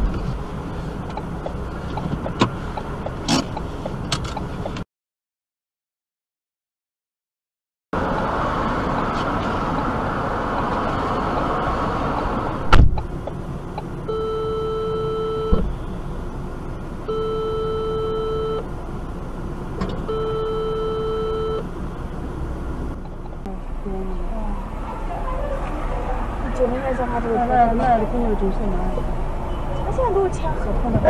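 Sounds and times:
car road noise: 0.0 - 4.8, 8.0 - 31.0
thump: 12.7 - 13.0
electronic warning beeps: 14.1 - 15.6, 17.1 - 18.6, 20.1 - 21.7.

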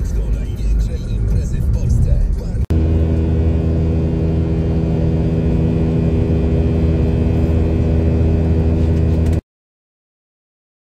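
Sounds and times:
jet engine cabin drone: 1.3 - 9.4.

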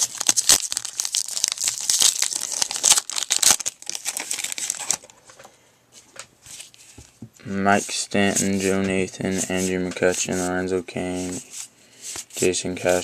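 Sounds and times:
wrapper tearing and crinkling: 0.0 - 5.1.

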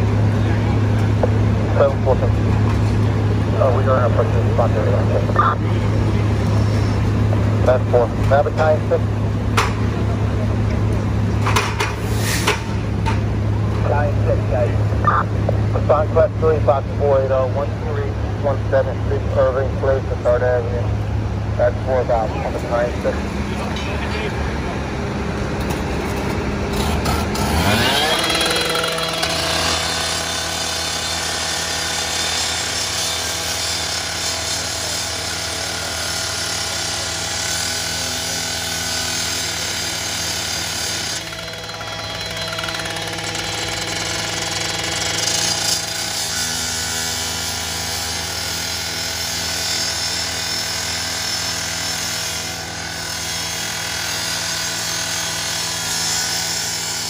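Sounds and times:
cut-off saw engine whine: 26.7 - 57.0
saw blade grinding steel: 26.7 - 57.0.

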